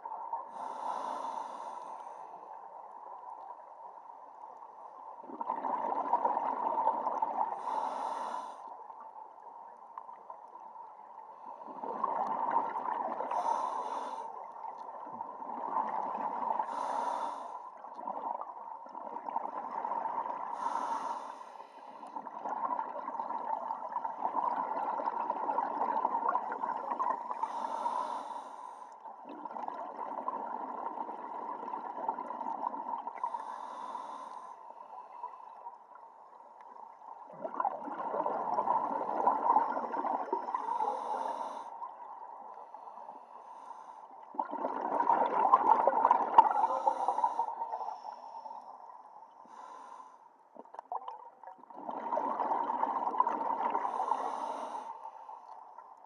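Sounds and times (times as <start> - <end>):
diver breathing through regulator: 0.5 - 2.4, 7.6 - 8.7, 13.3 - 14.4, 16.6 - 17.7, 20.6 - 22.2, 27.4 - 29.0, 33.2 - 35.2, 40.5 - 41.9, 42.8 - 44.1, 46.4 - 48.6, 49.4 - 50.4, 53.7 - 55.5
rushing bubbles: 5.2 - 7.5, 11.7 - 13.4, 29.2 - 33.1, 37.2 - 40.7, 44.3 - 46.7, 50.6 - 54.2.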